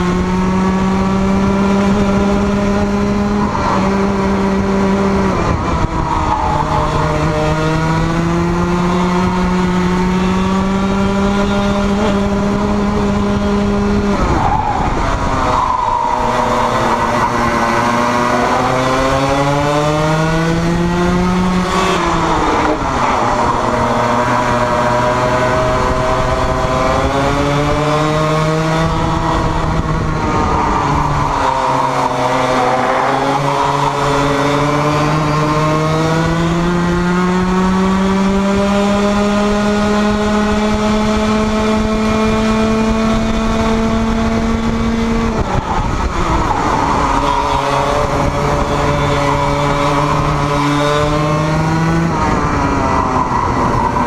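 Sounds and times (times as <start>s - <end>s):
kart engine at speed: 0.0s - 54.0s.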